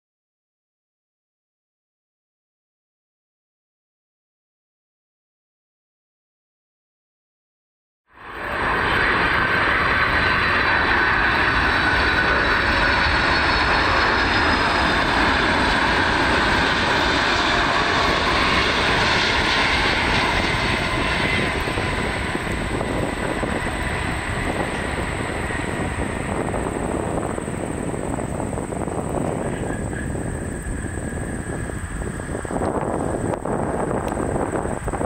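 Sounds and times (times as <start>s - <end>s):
jet engines rumble and whine: 8.1s - 35.0s.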